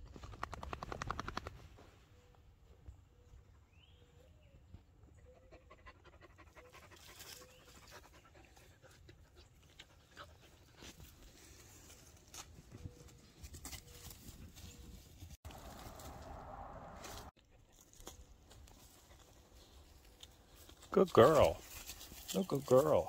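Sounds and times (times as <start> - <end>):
dog panting: 5.3 - 10.9
claws scratching dirt: 9.4 - 23.0.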